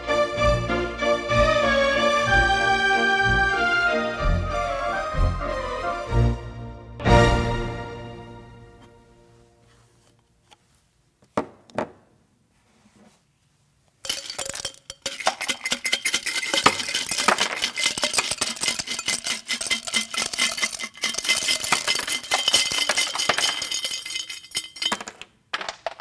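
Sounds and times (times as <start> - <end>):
ice clinking against glass: 14.0 - 25.2.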